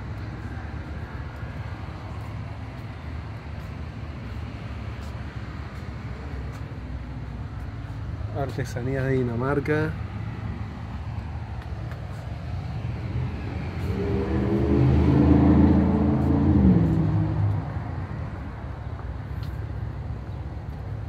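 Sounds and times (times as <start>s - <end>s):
low hum of street noise: 0.0s - 21.0s
vehicle engine passing: 10.2s - 18.8s.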